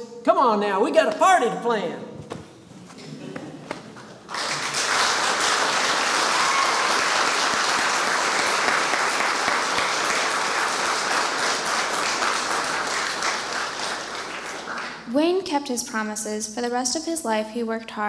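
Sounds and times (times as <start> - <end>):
audience applauding: 3.4 - 15.0.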